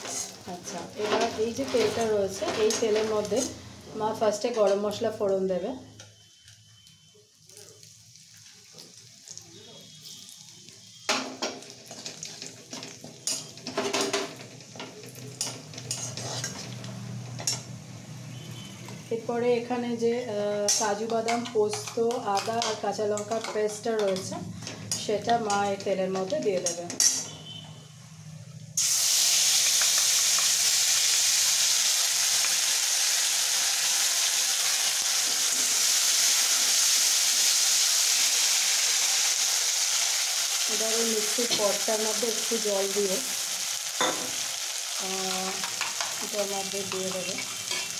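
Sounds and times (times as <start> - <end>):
spices sizzling in hot oil: 0.0 - 27.4, 28.2 - 47.9
metal spatula scraping pan: 1.0 - 3.6, 15.1 - 16.8, 46.8 - 47.9.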